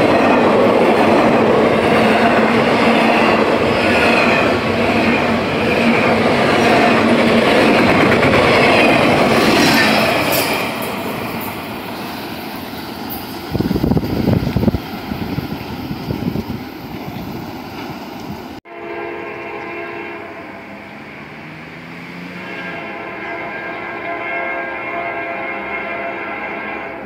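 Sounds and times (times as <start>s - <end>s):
wind buffeting microphone: 0.0s - 18.6s
freight train rumbling past: 0.0s - 27.0s.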